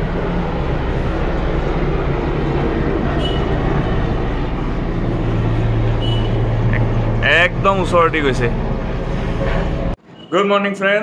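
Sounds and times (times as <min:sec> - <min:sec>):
helicopter rotor drone: 0:00.0 - 0:10.0.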